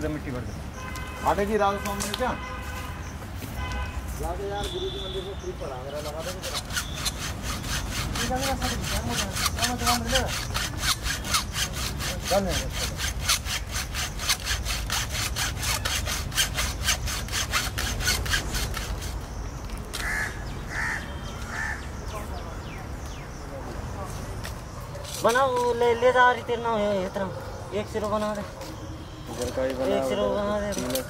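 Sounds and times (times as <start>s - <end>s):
hacksaw cutting cable: 5.9s - 19.3s, 19.9s - 20.3s, 30.7s - 31.0s.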